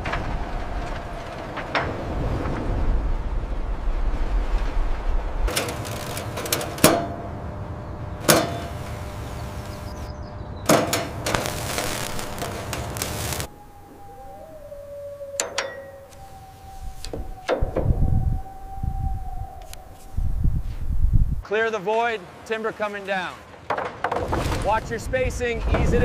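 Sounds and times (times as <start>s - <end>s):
low rumble: 0.0s - 21.4s
rushing noise: 0.0s - 21.5s
sharp metallic clanks ringing: 15.4s - 16.2s.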